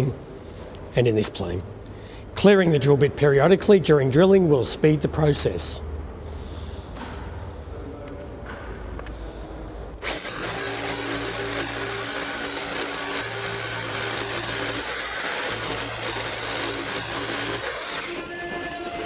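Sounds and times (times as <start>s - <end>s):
rotary hammer drilling concrete: 10.0s - 19.0s
vacuum running: 10.0s - 19.0s.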